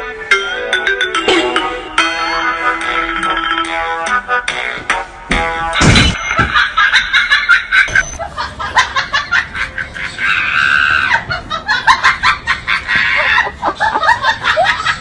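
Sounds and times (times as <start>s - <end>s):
rapid high-pitched laughter: 7.0s - 15.0s.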